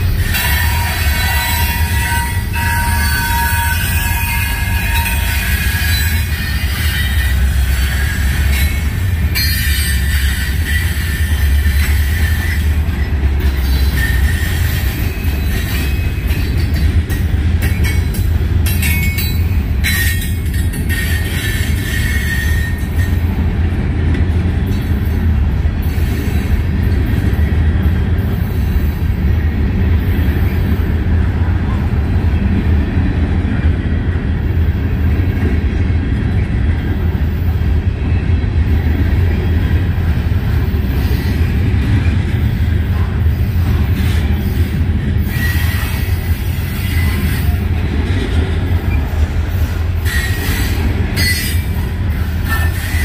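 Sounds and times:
train wheels rumbling on rails: 0.0s - 53.0s
steel wheels squealing: 0.2s - 17.2s, 18.9s - 23.3s, 44.3s - 47.8s, 48.8s - 53.0s.

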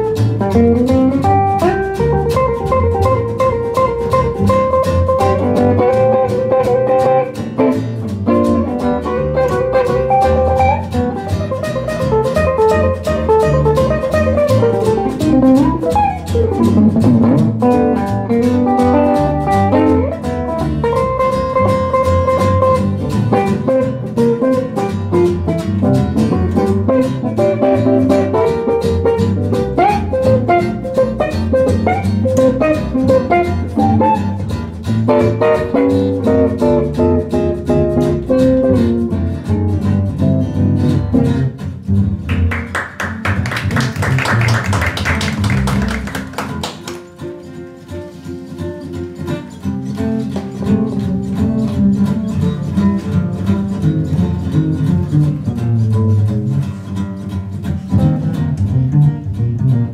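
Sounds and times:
single-note guitar solo: 0.0s - 41.6s
acoustic guitar strumming: 0.0s - 59.9s
plucked upright double bass: 0.0s - 59.9s.

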